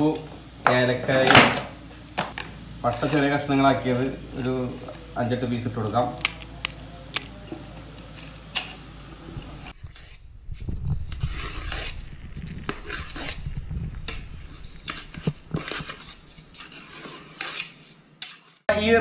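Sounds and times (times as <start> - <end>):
metal spatula scraping pot: 2.9 - 5.0, 9.7 - 18.7.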